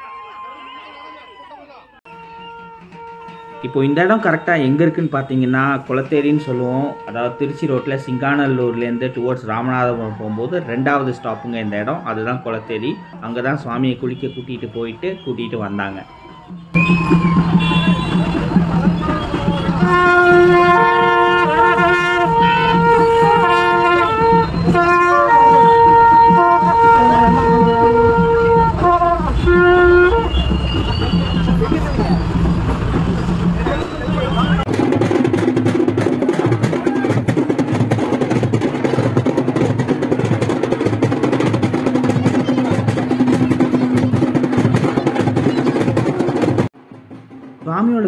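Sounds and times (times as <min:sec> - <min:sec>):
double-reed horn melody: 0:02.1 - 0:04.4, 0:06.3 - 0:09.5, 0:16.5 - 0:34.7
fast dense drumming: 0:16.7 - 0:48.0.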